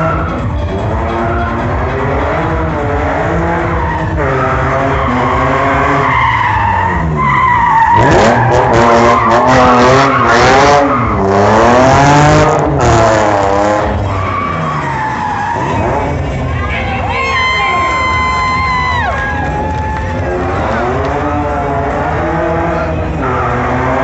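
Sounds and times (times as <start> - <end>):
car engine revving: 0.0 - 17.1, 17.7 - 24.0
tyres screeching: 3.3 - 11.7, 13.9 - 16.8.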